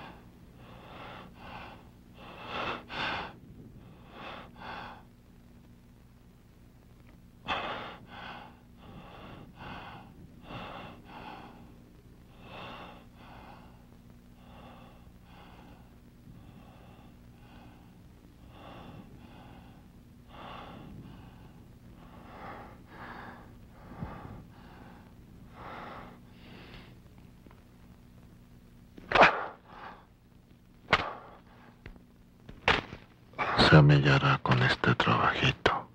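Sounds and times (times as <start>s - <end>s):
man breathing hard: 0.0s - 5.1s, 7.5s - 27.0s
steady low hum: 0.0s - 35.9s.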